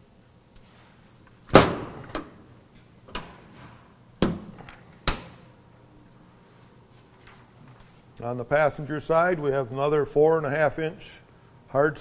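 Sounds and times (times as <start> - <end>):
metal door slamming: 1.5 - 2.3.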